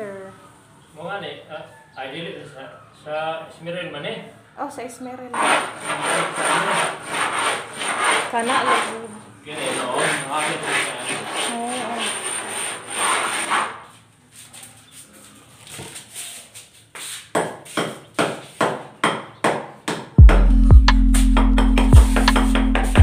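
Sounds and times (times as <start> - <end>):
steel file scraping plaster wall: 5.4 - 14.8.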